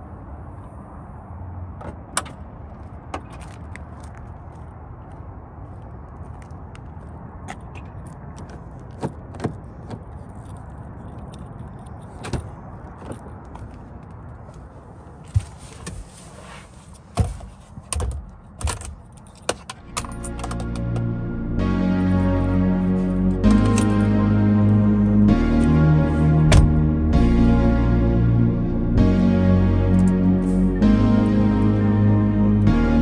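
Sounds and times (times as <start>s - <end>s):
low rumble: 19.8s - 33.0s.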